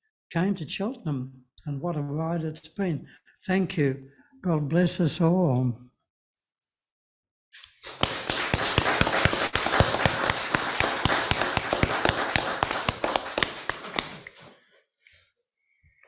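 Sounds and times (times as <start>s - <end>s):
congregation applauding: 7.8s - 14.4s.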